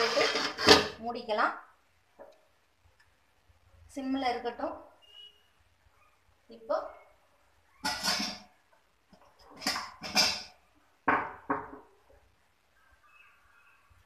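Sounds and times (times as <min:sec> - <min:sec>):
metal scraping rasps: 0:00.0 - 0:01.0.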